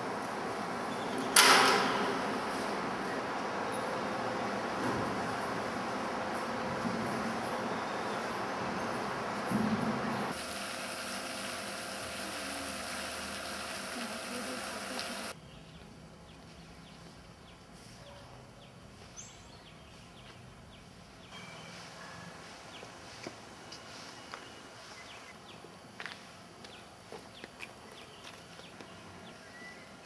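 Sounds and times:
fountain jet splashing into pond: 10.3s - 15.3s.

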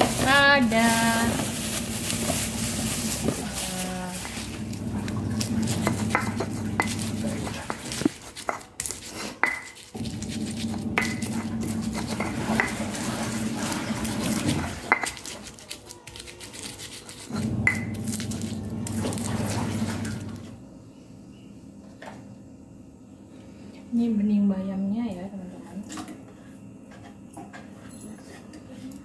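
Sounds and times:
washing machine hum: 0.0s - 8.4s, 9.9s - 15.0s, 17.3s - 20.9s
stone pestle grinding in mortar: 1.2s - 18.6s.

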